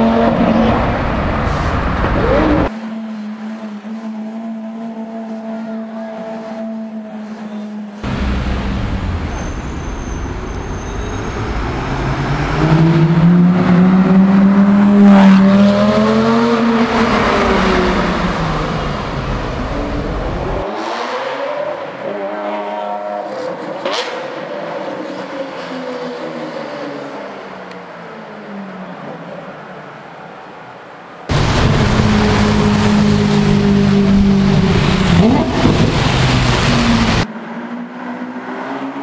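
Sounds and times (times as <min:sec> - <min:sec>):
sports car engine at low revs: 0:08.0 - 0:10.3
sharp engine crack: 0:08.0 - 0:11.8.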